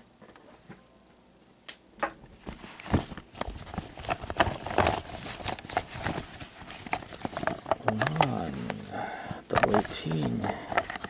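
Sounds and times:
camera handling knocks and rubbing: 2.5s - 8.3s.

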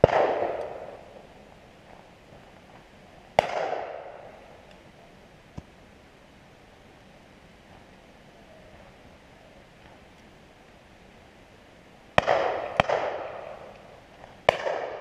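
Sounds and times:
shotgun shot: 0.0s - 1.0s, 3.4s - 4.2s, 12.2s - 13.6s, 14.5s - 15.0s.

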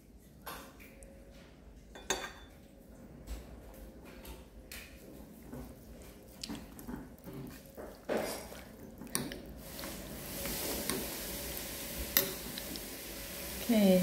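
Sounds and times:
utensils and pots clinking: 1.9s - 2.6s, 12.1s - 12.6s
steady hiss: 9.6s - 14.0s.

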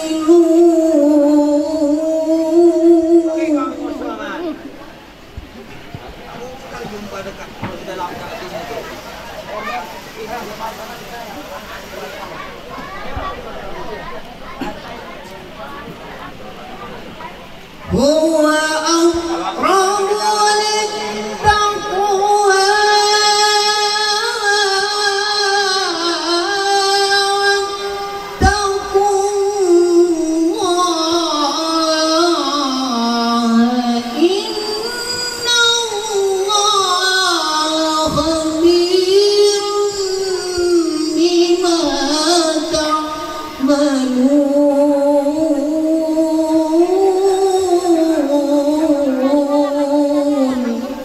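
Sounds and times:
person singing religious song: 0.0s - 4.9s, 17.8s - 51.0s.

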